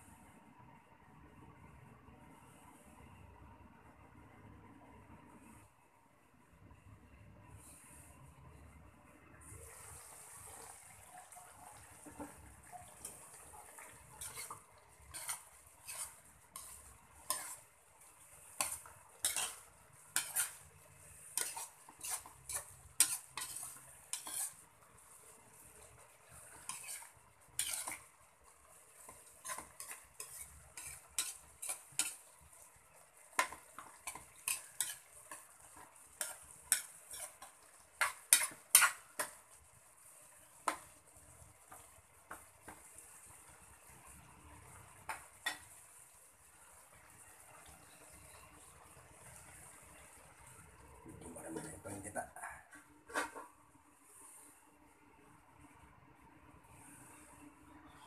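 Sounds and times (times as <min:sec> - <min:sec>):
faint steady hiss: 0:00.0 - 0:58.0
metal spatula scraping a wok: 0:11.4 - 0:42.8, 0:44.7 - 0:46.0, 0:52.7 - 0:53.5.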